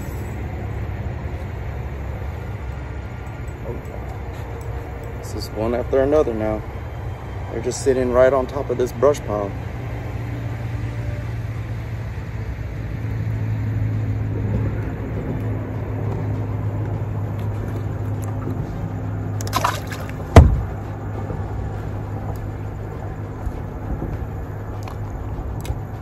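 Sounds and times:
low motor hum: 0.0 - 26.0
short rushing splash: 19.4 - 20.6
sharp knock: 20.4 - 20.7.

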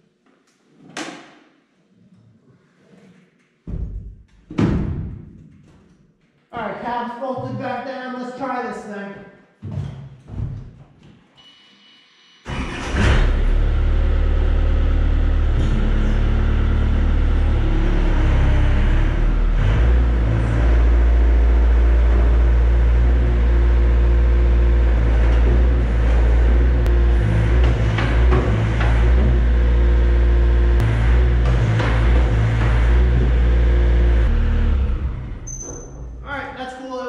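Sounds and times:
loader engine starting and running: 12.5 - 36.2.

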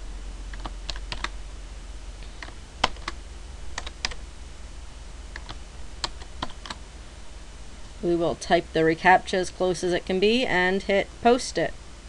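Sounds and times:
faint low hum: 0.0 - 12.0
keyboard typing: 0.5 - 1.4, 2.4 - 3.2, 3.8 - 4.2, 5.3 - 6.8.

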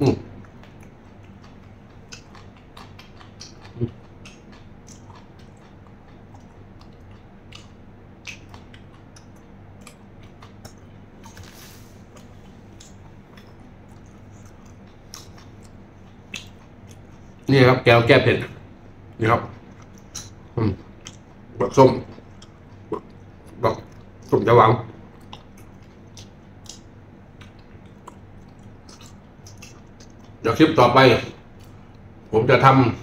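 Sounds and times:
low throat hum: 0.0 - 9.2
man chewing food: 0.1 - 17.5, 18.6 - 30.4, 31.2 - 32.3.

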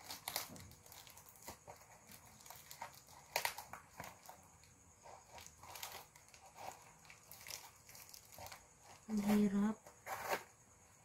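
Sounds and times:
scissors cutting packing tape: 0.0 - 4.2
tape crinkling: 0.0 - 10.5.

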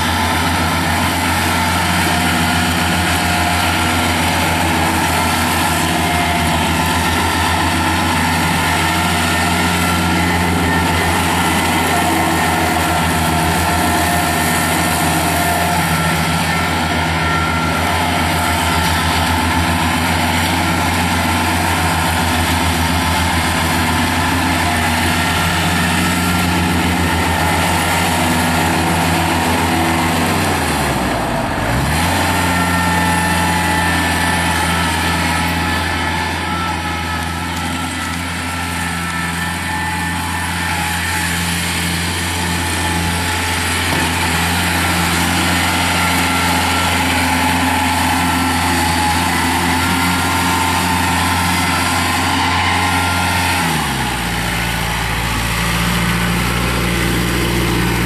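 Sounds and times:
tractor diesel engine running: 0.0 - 58.0.

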